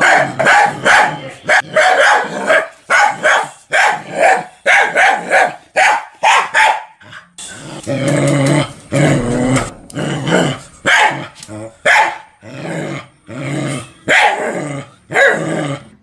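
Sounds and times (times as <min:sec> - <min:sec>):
dog barking: 0:00.0 - 0:07.0, 0:10.8 - 0:12.4, 0:14.1 - 0:15.5.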